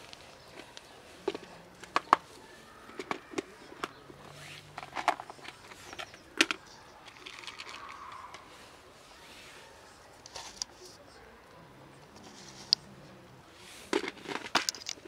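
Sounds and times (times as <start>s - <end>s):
kibble clicking on asphalt: 0.0s - 4.1s, 4.7s - 8.4s, 13.9s - 15.0s.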